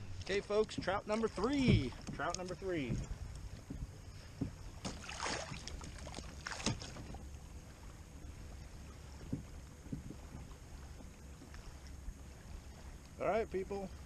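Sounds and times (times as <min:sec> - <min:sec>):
microphone handling rustle: 0:00.0 - 0:07.3
wind rumble on microphone: 0:00.0 - 0:14.0
faint knocks: 0:00.6 - 0:05.0, 0:09.2 - 0:11.6.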